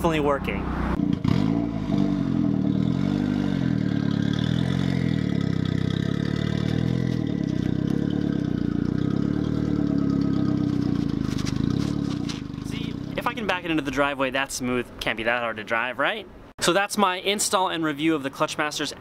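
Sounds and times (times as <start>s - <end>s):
car engine at low revs: 0.6s - 13.3s.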